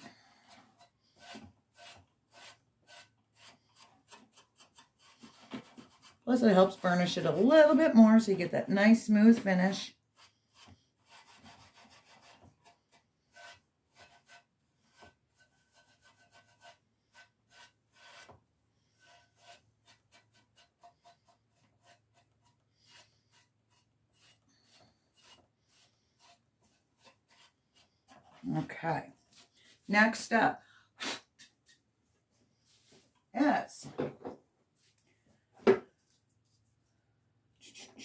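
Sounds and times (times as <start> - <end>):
steel wool scratching: 0.0 - 30.4.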